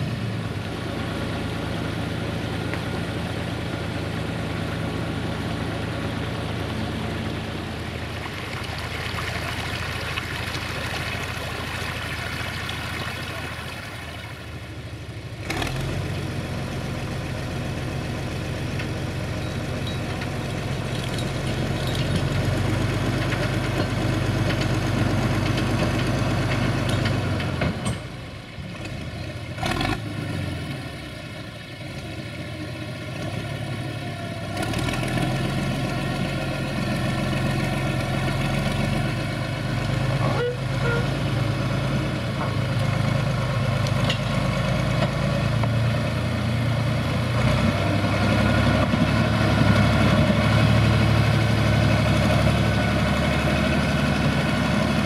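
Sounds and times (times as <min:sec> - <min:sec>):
tractor diesel engine under load: 0:00.0 - 0:55.0
stream rushing over rocks: 0:07.7 - 0:15.5.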